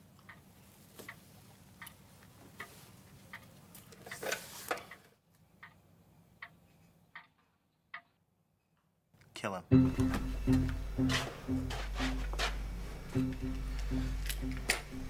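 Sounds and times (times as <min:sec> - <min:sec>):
clock ticking: 0:01.1 - 0:03.5, 0:05.6 - 0:05.8, 0:06.4 - 0:08.2, 0:09.7 - 0:15.0
low room hum: 0:09.6 - 0:15.0.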